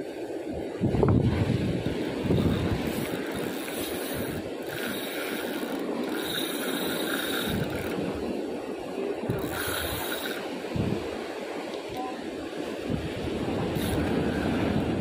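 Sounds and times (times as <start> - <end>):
ocean surf: 0.0 - 15.0
wind buffeting microphone: 0.0 - 15.0.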